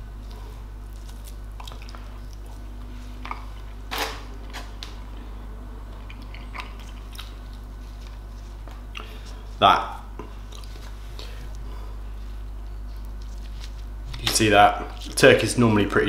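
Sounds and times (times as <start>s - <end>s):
low hum: 0.0s - 15.2s
person chewing: 0.1s - 3.8s, 4.4s - 11.7s.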